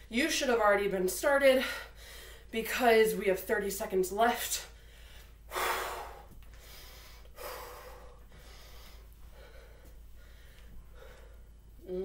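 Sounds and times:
woman breathing hard: 0:04.8 - 0:11.6.

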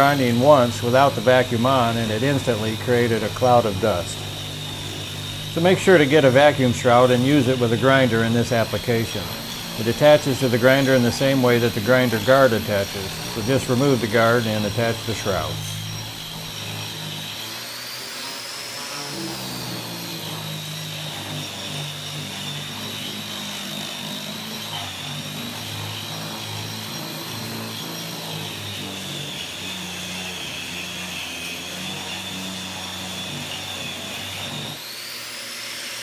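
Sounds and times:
angle grinder grinding mortar: 0:00.0 - 0:36.0
shop vac running: 0:00.0 - 0:36.0.

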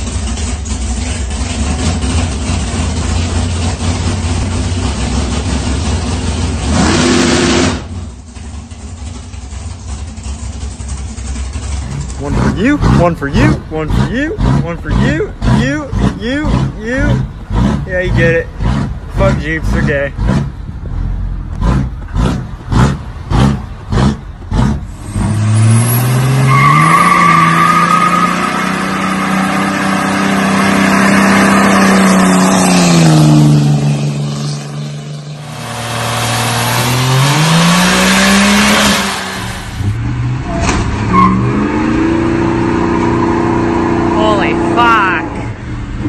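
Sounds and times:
second pickup revving: 0:00.0 - 0:08.4, 0:09.9 - 0:46.0
diesel engine revving: 0:00.0 - 0:46.0
tires squealing: 0:11.6 - 0:45.6.

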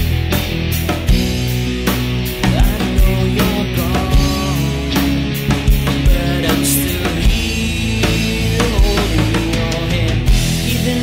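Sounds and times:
song with steady drum beat: 0:00.0 - 0:11.0.

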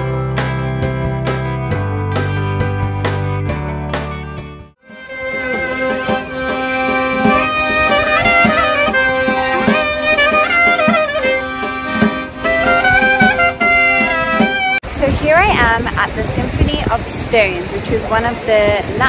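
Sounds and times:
accordion chords: 0:00.0 - 0:14.9
clarinet melody: 0:04.8 - 0:14.8
hand drum beat: 0:05.3 - 0:14.8.

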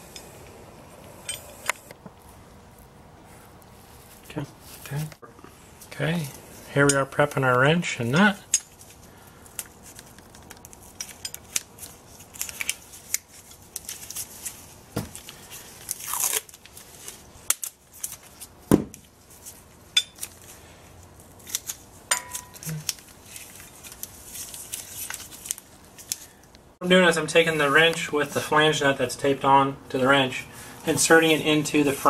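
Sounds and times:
tape crinkling: 0:08.7 - 0:26.6
tape pulled off roll and torn: 0:08.8 - 0:19.6, 0:21.3 - 0:26.3.

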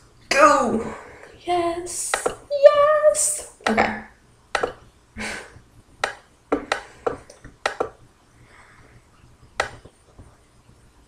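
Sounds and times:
sharp clicks and taps: 0:02.1 - 0:02.4, 0:04.5 - 0:04.8, 0:06.0 - 0:08.0, 0:09.6 - 0:10.3.

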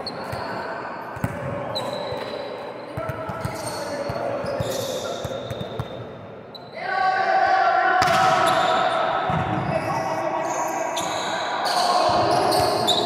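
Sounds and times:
players' voices murmuring: 0:07.7 - 0:13.0.

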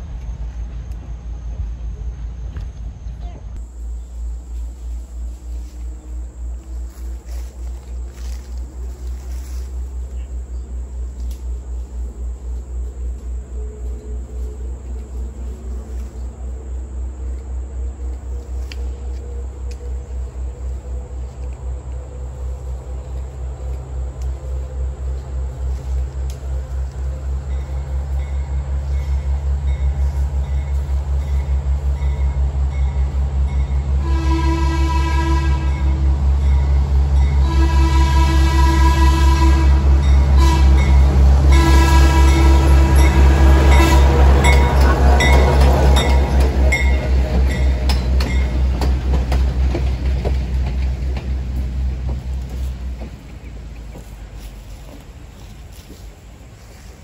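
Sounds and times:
train locomotive rumbling: 0:00.0 - 0:57.0
train horn blast: 0:18.5 - 0:48.1
train wheels clicking over rail joints: 0:39.8 - 0:57.0.

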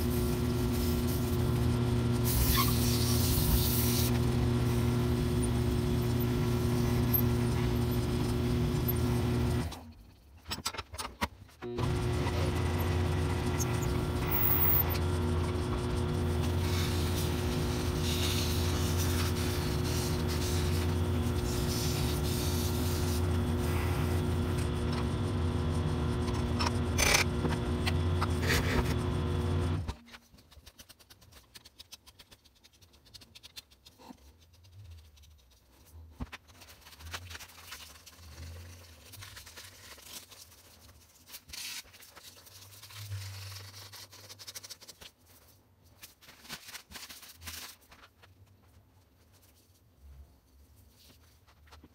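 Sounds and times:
wood lathe humming: 0:00.0 - 0:09.7, 0:11.8 - 0:29.9.

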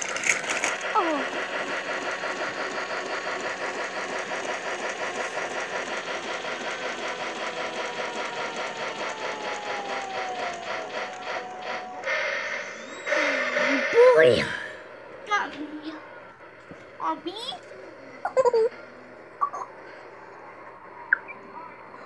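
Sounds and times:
clatter of wheels and gears: 0:00.0 - 0:14.0
small electric motor whirring: 0:00.0 - 0:16.9
hiss: 0:10.6 - 0:14.5.

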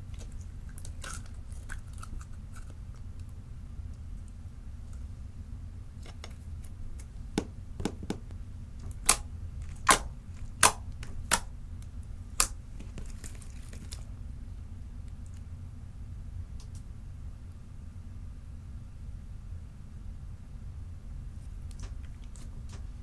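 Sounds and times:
slime popping and clicking: 0:08.9 - 0:11.5.

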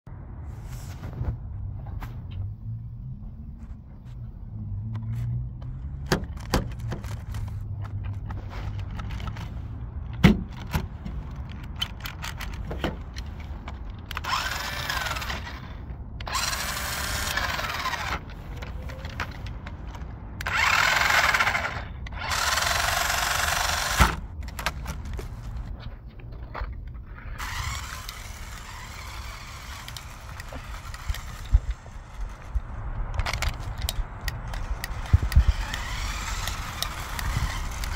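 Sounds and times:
toy car motor whirring: 0:06.3 - 0:07.7, 0:11.3 - 0:12.7, 0:13.7 - 0:19.6, 0:20.4 - 0:25.3, 0:27.1 - 0:37.9
sharp plastic clicks: 0:10.1 - 0:15.6, 0:27.4 - 0:37.9.

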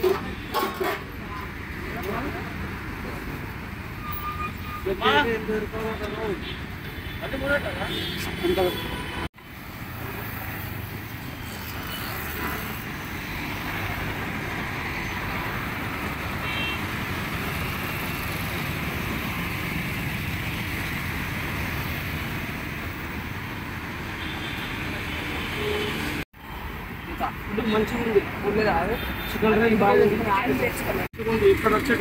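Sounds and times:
passing traffic rumble: 0:24.8 - 0:32.0.

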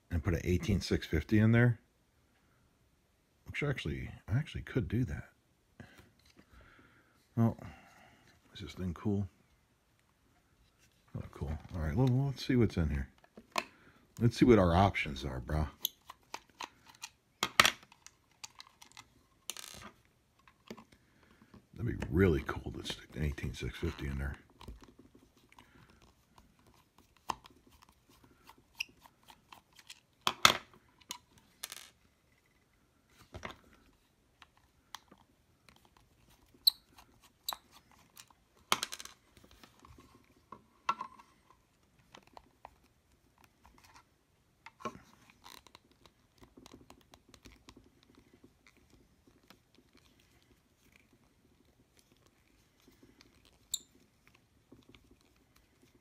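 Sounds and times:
plastic handling noises: 0:10.6 - 0:32.1.

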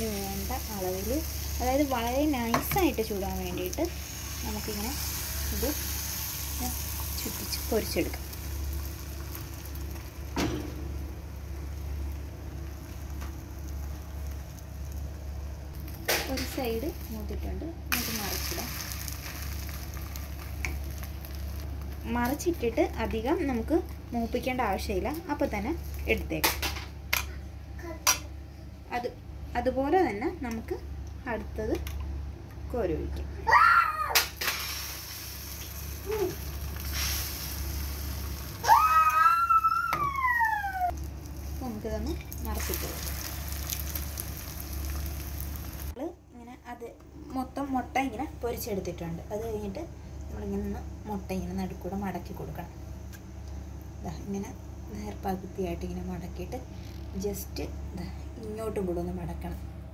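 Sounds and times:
egg sizzling in a pan: 0:00.0 - 0:26.3, 0:34.2 - 0:46.0
child's drawn-out call: 0:38.6 - 0:40.9.

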